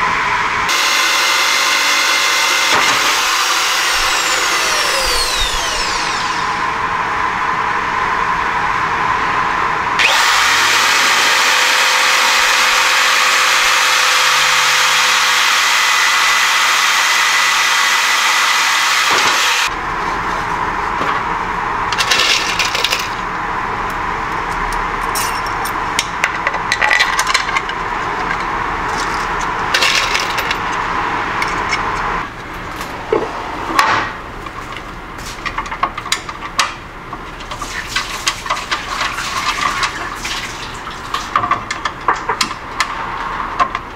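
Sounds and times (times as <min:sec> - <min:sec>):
electric hand drill running: 0:00.7 - 0:06.8, 0:10.0 - 0:19.7.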